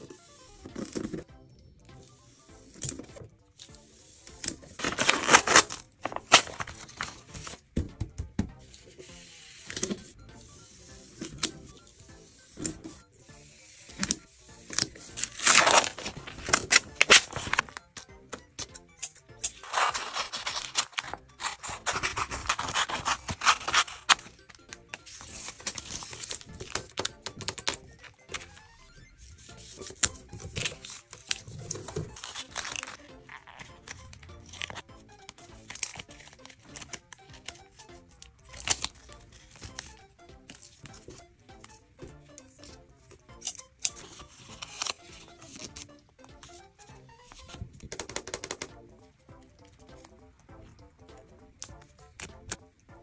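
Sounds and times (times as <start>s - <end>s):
soft background music: 0.0s - 53.0s
packing tape crinkling: 4.3s - 7.6s, 13.9s - 18.0s, 19.0s - 28.6s, 29.4s - 41.7s, 43.4s - 46.6s
paper rustling: 4.3s - 7.7s, 13.9s - 18.0s, 18.6s - 28.6s, 29.2s - 41.7s, 43.8s - 46.6s.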